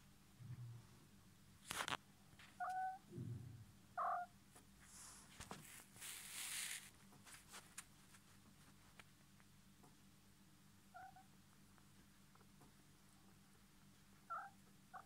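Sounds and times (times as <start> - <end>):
soft rustling and scuffling: 4.5 - 9.5.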